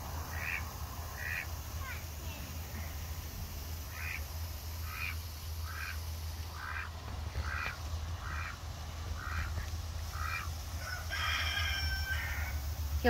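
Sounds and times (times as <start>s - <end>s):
duck quacking: 0.3s - 0.6s, 1.2s - 1.5s, 3.9s - 10.5s.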